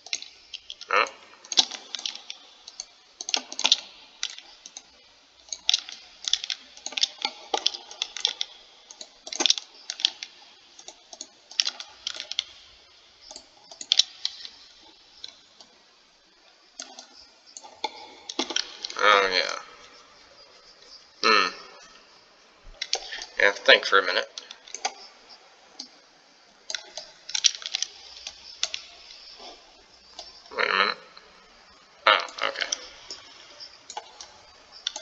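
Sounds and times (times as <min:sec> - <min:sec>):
mouse and keyboard clicking: 0:00.0 - 0:15.7, 0:16.8 - 0:19.1, 0:22.7 - 0:23.4, 0:24.4 - 0:25.1, 0:26.7 - 0:30.5, 0:32.3 - 0:35.0.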